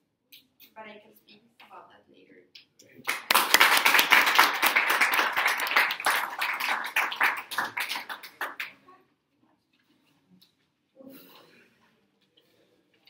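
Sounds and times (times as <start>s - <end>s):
audience applauding: 3.1s - 8.8s.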